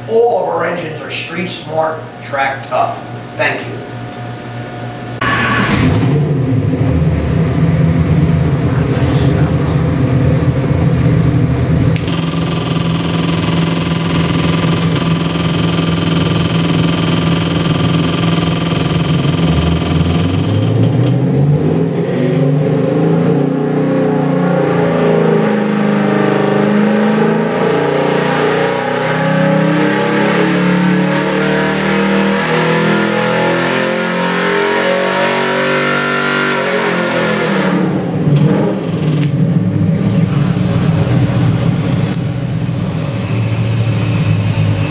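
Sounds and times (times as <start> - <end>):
engine idling: 5.2 - 21.2, 38.0 - 44.9
engine revving on a dynamometer: 5.2 - 44.9.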